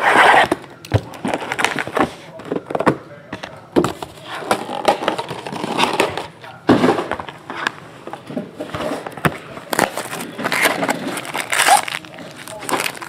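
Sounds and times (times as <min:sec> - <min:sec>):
plastic wrap tearing and crinkling: 0:01.1 - 0:02.0, 0:09.6 - 0:13.0.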